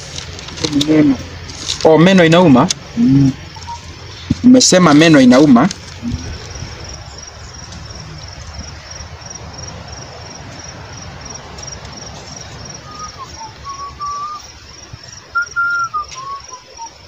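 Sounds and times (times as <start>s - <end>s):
cricket chirping: 0.0s - 17.0s
whistled notes: 12.8s - 14.6s, 15.2s - 17.0s.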